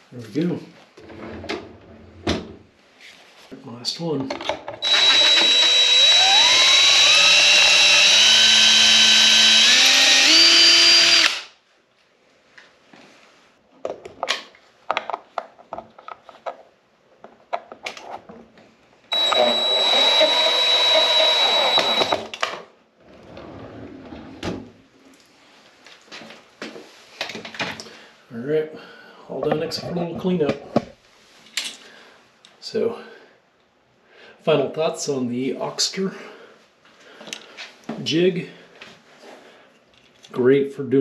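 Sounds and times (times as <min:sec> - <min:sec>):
cordless drill boring wood: 0:04.8 - 0:11.6, 0:19.1 - 0:22.4.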